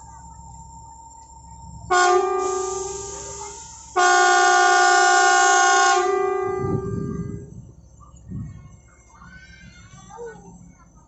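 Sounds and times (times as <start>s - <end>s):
machine horn blasts: 1.9s - 7.4s.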